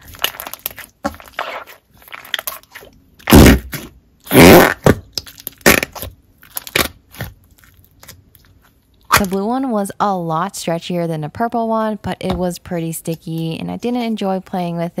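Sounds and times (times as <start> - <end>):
slime squishing: 0.0 - 9.4.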